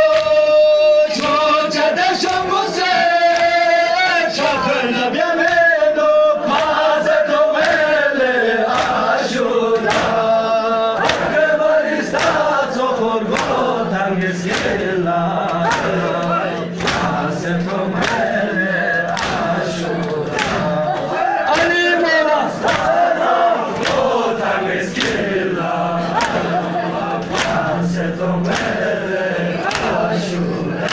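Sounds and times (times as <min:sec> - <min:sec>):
crowd of men chanting: 0:00.0 - 0:30.9
palms slapping chests: 0:09.7 - 0:10.4, 0:11.0 - 0:11.4, 0:12.0 - 0:12.6, 0:13.3 - 0:21.9, 0:22.6 - 0:25.4, 0:26.0 - 0:28.9, 0:29.6 - 0:30.1.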